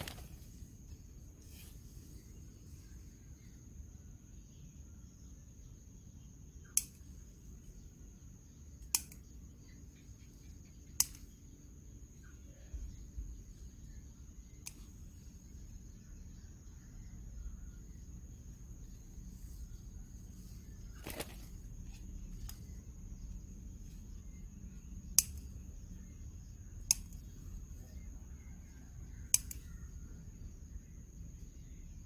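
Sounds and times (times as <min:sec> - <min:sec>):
insect drone: 0:00.0 - 0:32.0
garden scissors snipping stems: 0:06.6 - 0:07.2, 0:08.7 - 0:09.3, 0:10.8 - 0:11.4, 0:14.6 - 0:15.0, 0:26.8 - 0:27.3, 0:29.3 - 0:29.7.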